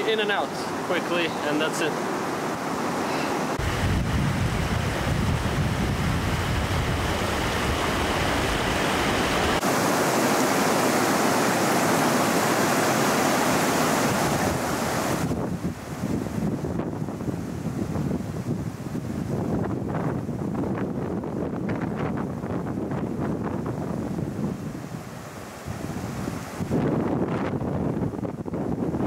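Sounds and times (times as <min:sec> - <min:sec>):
wind buffeting microphone: 0:03.5 - 0:09.7, 0:14.0 - 0:29.0
river rushing over rocks: 0:06.2 - 0:16.0.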